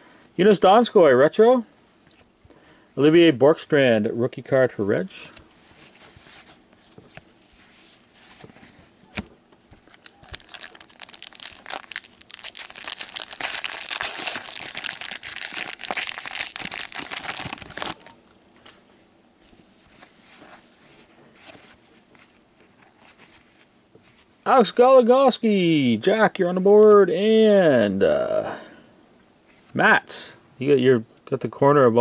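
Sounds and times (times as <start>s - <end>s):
cards rustling: 5.8s - 18.8s
wrapper crinkling: 9.8s - 18.2s.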